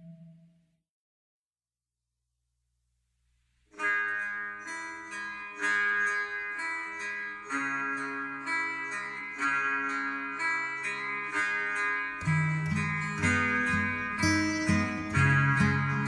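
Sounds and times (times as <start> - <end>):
plucked string instrument music: 3.8 - 16.0.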